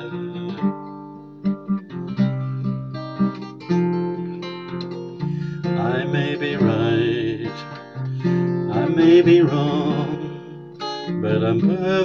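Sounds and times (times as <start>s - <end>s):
man singing with vibrato: 0.0s - 0.7s, 5.6s - 12.0s
acoustic guitar picked and strummed: 0.0s - 12.0s.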